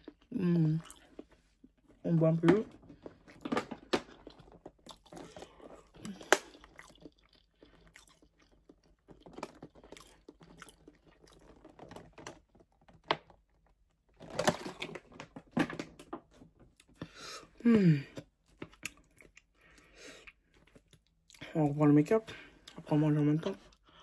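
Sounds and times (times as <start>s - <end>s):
person gulping water: 0.0s - 1.3s, 3.0s - 11.8s
mouth smacks and chewing: 3.1s - 11.8s, 18.2s - 21.4s.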